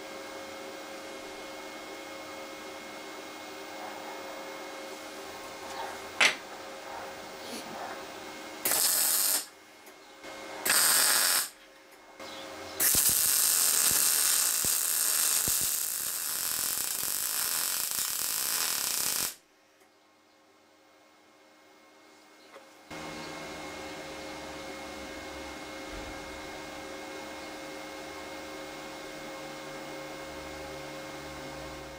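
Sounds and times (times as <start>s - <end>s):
welding arc crackling hiss: 8.6s - 9.5s, 10.6s - 11.6s, 12.8s - 19.4s.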